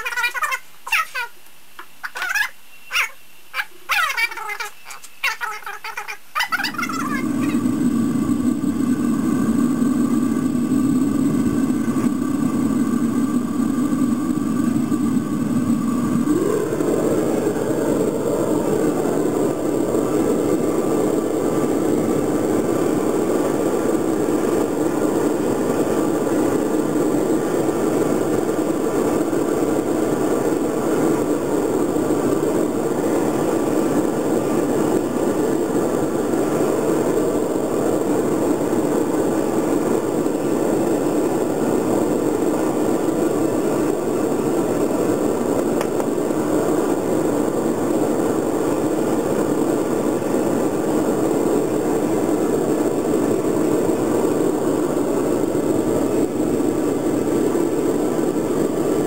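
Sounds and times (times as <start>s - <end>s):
furnace roaring: 0.0s - 59.0s.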